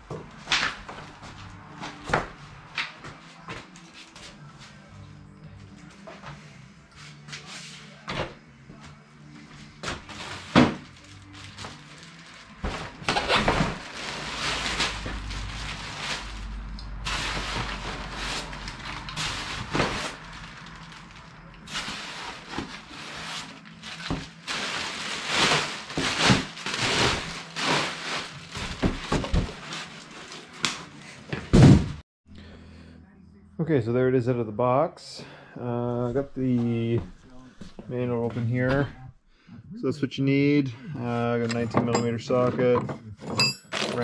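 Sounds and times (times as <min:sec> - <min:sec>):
packaging rustling and scraping: 0:09.8 - 0:31.9.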